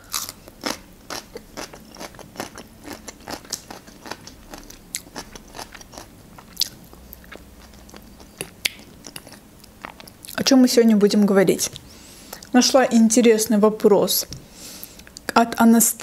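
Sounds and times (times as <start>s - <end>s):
crunching cucumber: 0.0s - 10.4s
close chewing with mouth clicks: 0.1s - 10.4s.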